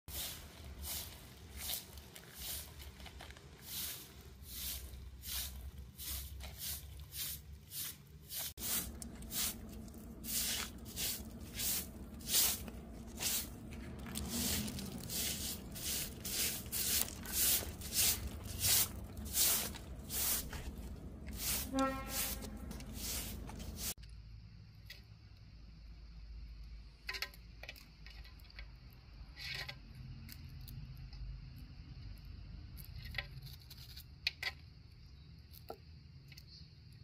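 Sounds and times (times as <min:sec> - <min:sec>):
broom sweeping concrete: 0:00.1 - 0:24.0.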